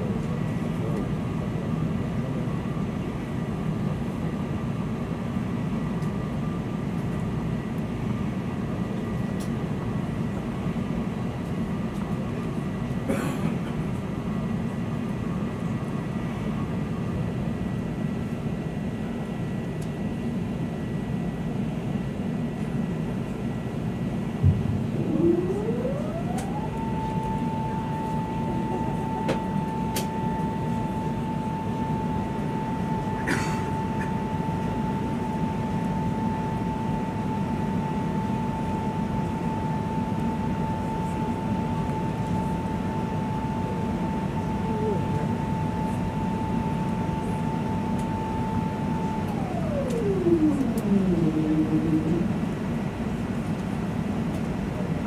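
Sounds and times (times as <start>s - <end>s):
aircraft cabin rumble: 0.0s - 55.0s
rising whine: 24.2s - 53.6s
faint steady tones: 24.6s - 53.1s.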